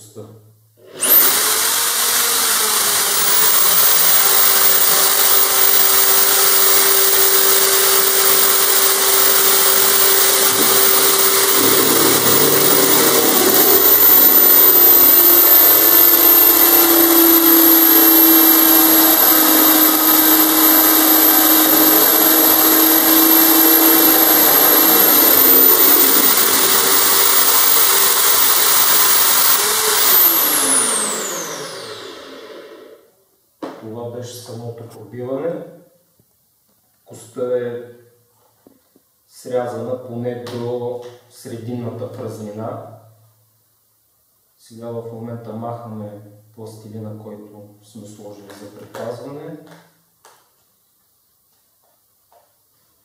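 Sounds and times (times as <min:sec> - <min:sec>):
electric drill whine: 0:00.8 - 0:33.1.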